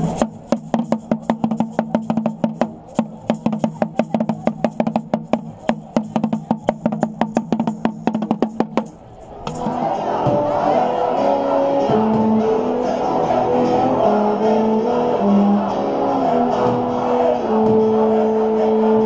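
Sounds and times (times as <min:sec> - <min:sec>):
hand drum beaten with stick: 0:00.0 - 0:10.5.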